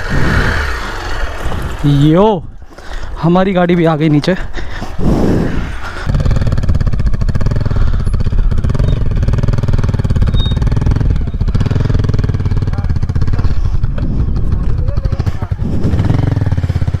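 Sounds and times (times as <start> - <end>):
motorcycle engine running: 0.0 - 2.1, 5.6 - 17.0.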